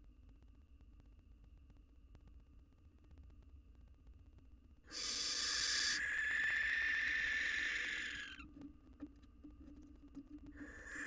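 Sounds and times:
barn owl screech: 0:04.9 - 0:08.4, 0:10.7 - 0:11.0.

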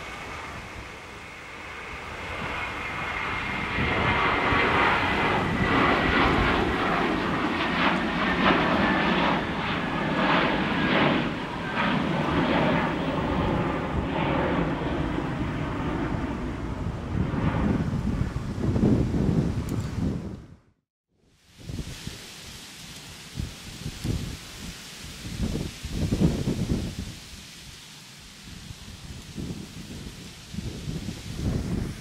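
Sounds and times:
thin jet whine: 0:00.0 - 0:20.1
jet engines passing close: 0:00.0 - 0:32.0.

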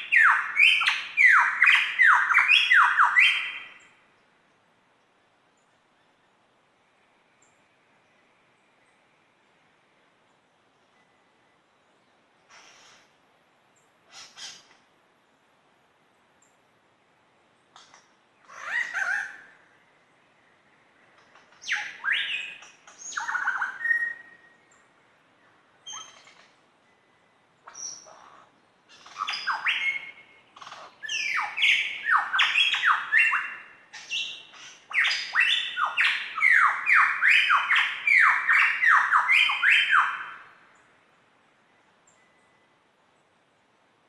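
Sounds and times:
lyrebird singing: 0:00.0 - 0:04.0, 0:13.8 - 0:14.8, 0:17.7 - 0:19.7, 0:20.5 - 0:24.9, 0:25.8 - 0:40.9.

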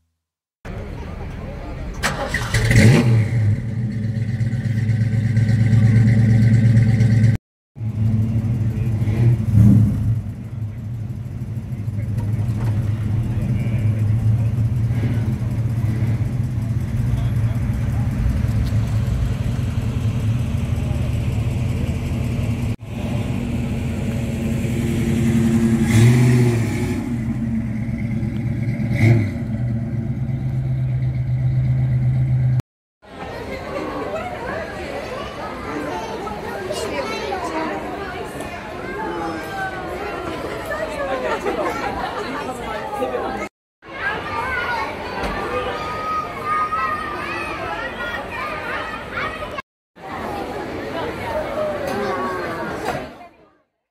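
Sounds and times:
car engine revving: 0:02.0 - 0:32.6
car engine idling: 0:03.5 - 0:26.4.

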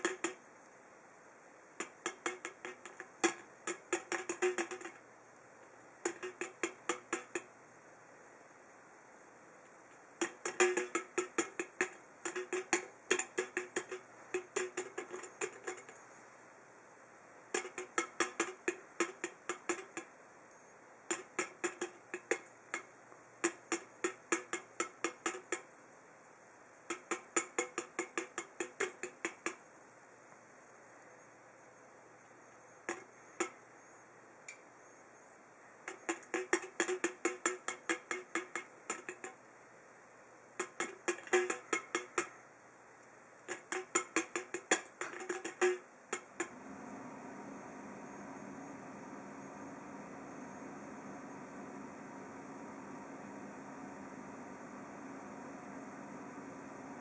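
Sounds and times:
bird pecking metal can: 0:00.0 - 0:00.4, 0:01.8 - 0:05.1, 0:06.0 - 0:07.6, 0:09.9 - 0:16.1, 0:17.4 - 0:20.1, 0:21.0 - 0:25.8, 0:26.8 - 0:29.6, 0:32.8 - 0:33.6, 0:35.8 - 0:39.4, 0:40.5 - 0:42.5, 0:43.4 - 0:57.0.

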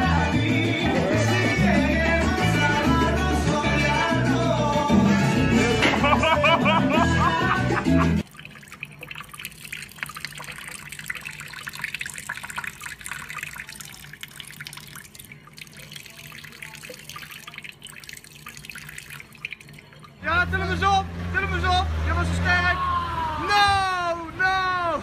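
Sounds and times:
salsa music: 0:00.0 - 0:08.2
faucet water stream splashing: 0:08.2 - 0:20.2.

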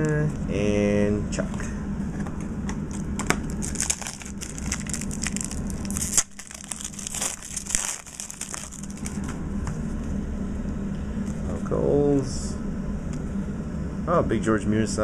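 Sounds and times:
wrapper crinkling and tearing: 0:02.9 - 0:09.3.

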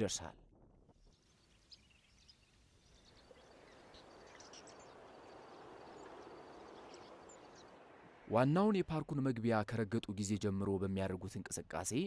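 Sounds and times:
high bird chirps: 0:01.0 - 0:07.8.

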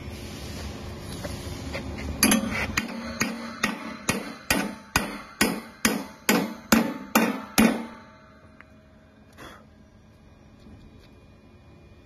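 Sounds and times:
hammer striking steel: 0:02.2 - 0:08.6.

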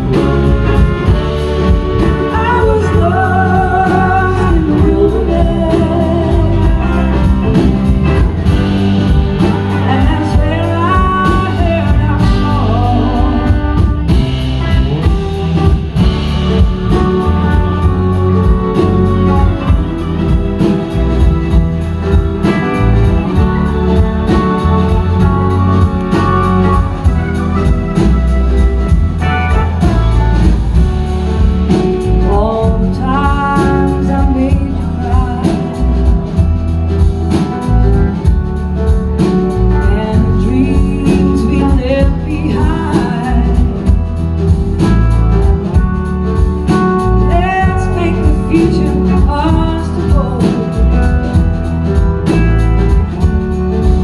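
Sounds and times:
live blues-rock band: 0:00.0 - 0:54.0
person singing: 0:01.9 - 0:07.9, 0:32.0 - 0:36.2.

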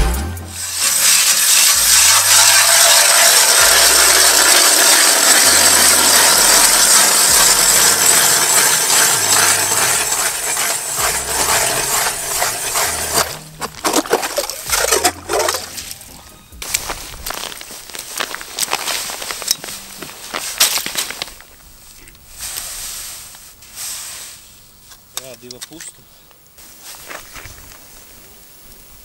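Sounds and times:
ice auger scraping through ice: 0:00.6 - 0:15.9, 0:16.6 - 0:21.4.

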